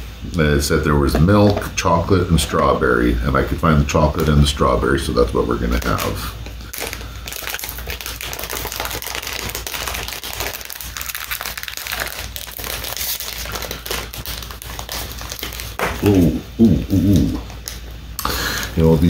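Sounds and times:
plastic wrapper crinkling: 0:05.3 - 0:19.0.

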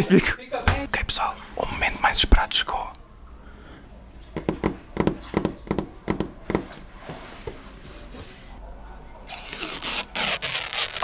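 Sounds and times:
fingertips tapping plastic film: 0:09.3 - 0:11.0.

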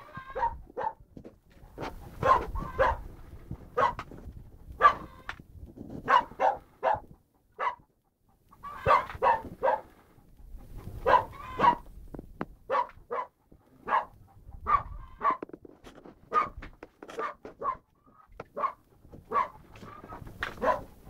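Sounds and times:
dog barking: 0:00.3 - 0:01.0, 0:02.2 - 0:03.1, 0:03.7 - 0:04.0, 0:04.8 - 0:05.2, 0:06.0 - 0:07.9, 0:08.6 - 0:10.0, 0:10.9 - 0:11.9, 0:12.6 - 0:15.4, 0:16.3 - 0:21.0.

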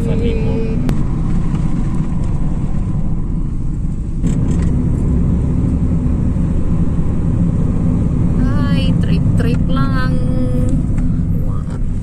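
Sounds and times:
car road and engine rumble: 0:00.0 - 0:12.0.

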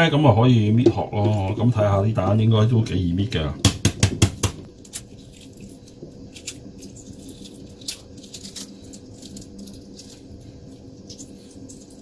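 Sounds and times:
eggshell crackling as peeled: 0:04.4 - 0:12.0.

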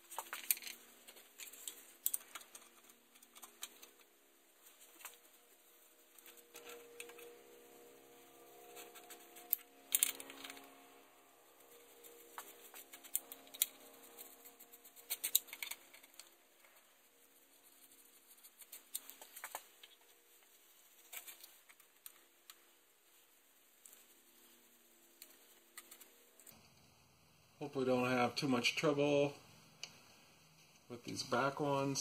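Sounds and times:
metallic clicks of tools and bolts: 0:08.7 - 0:10.7, 0:15.0 - 0:16.3.

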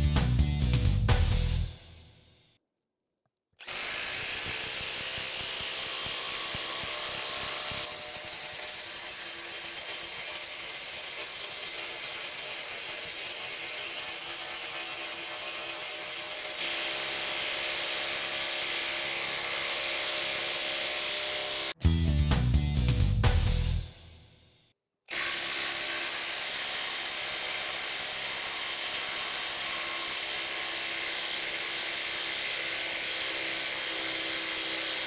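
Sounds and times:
impact driver hammering buzz: 0:03.6 - 0:21.8.

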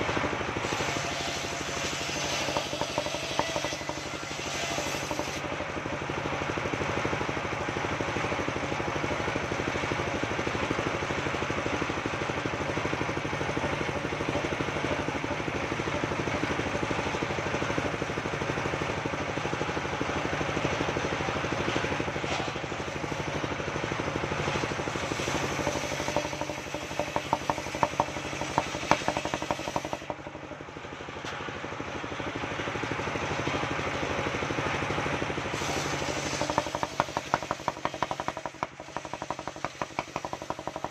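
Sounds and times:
sawmill engine running: 0:00.0 - 0:40.9
sharp knocks and clatter: 0:01.4 - 0:05.6, 0:24.4 - 0:30.4, 0:35.6 - 0:40.9.

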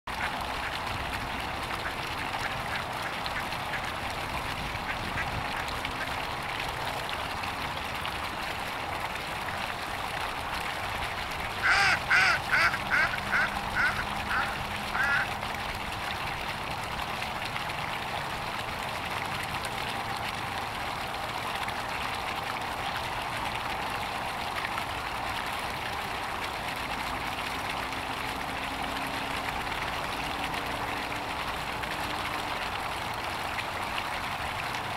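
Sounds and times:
duck quacking: 0:11.6 - 0:15.3.

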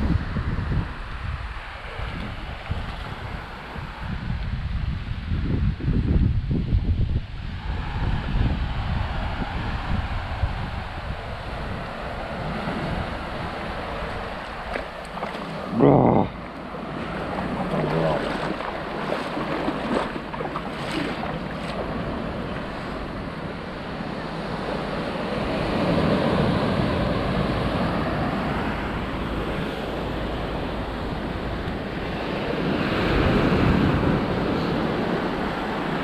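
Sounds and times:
sea waves breaking on beach: 0:07.4 - 0:36.0.

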